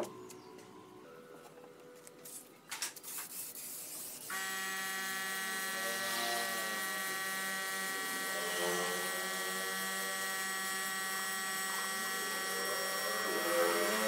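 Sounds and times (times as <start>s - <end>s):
paint spray gun buzzing: 3.1s - 14.0s.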